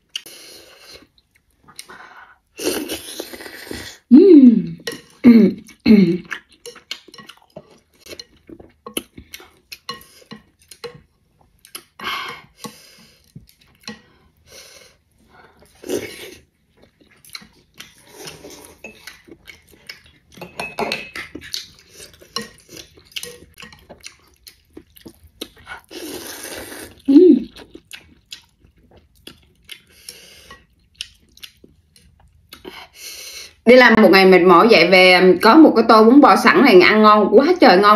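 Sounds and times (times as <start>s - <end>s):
slurping noodles: 2.6s - 4.1s, 25.6s - 27.1s
chewing: 4.8s - 20.5s, 21.1s - 33.0s.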